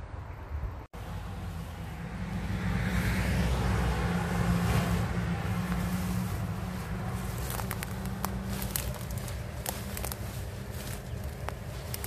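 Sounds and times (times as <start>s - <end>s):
car passing: 0.0s - 12.0s
steady low rumble: 4.2s - 12.0s
crackles and rustles: 4.7s - 12.0s.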